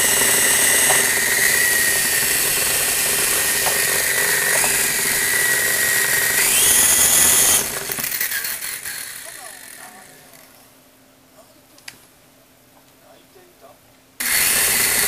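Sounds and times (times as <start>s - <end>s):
toy helicopter motors whining: 0.0s - 10.6s, 14.2s - 15.0s.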